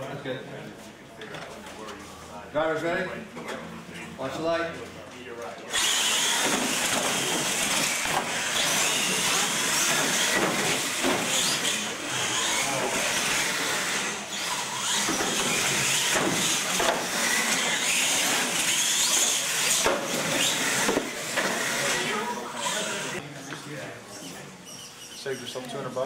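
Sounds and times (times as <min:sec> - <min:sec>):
electric motors whining: 0:05.6 - 0:26.0.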